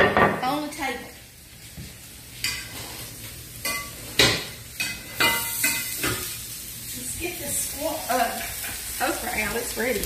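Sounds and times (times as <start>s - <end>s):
okra sizzling in a skillet: 0.3s - 10.0s
utensil clinking on cookware: 3.6s - 6.3s.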